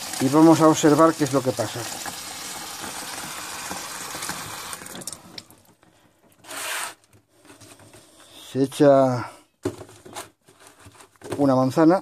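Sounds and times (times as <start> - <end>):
tap water pouring into container: 0.0 - 5.7.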